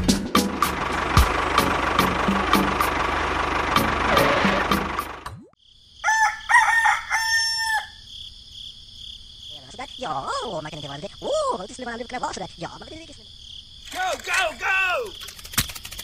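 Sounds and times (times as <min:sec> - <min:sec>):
crickets chirring: 0:05.6 - 0:16.0
rooster crowing: 0:06.0 - 0:08.1.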